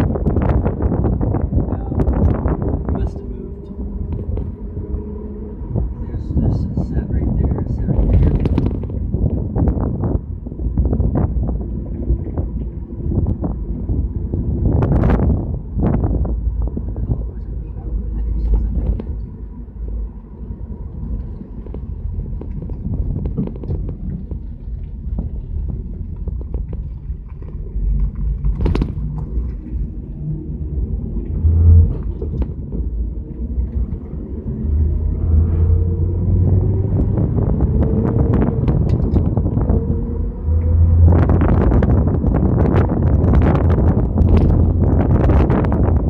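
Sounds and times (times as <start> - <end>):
car engine and road rumble: 0.0 - 46.0.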